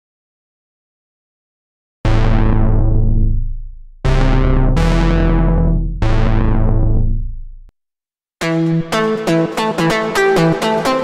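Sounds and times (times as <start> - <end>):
deep synthesizer bass notes: 2.0 - 7.7
bright synth stab: 2.1 - 7.7.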